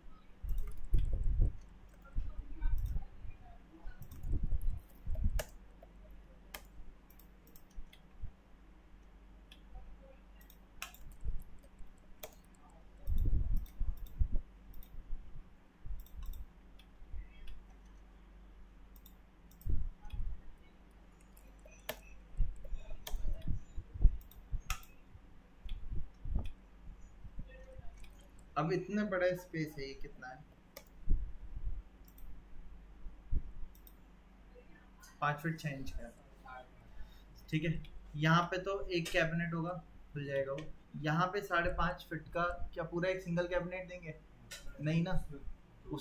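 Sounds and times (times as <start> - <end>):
mouse and keyboard clicks: 0.4 - 2.1, 4.0 - 5.9, 10.4 - 15.0, 16.0 - 18.0, 21.1 - 25.0, 27.7 - 28.6.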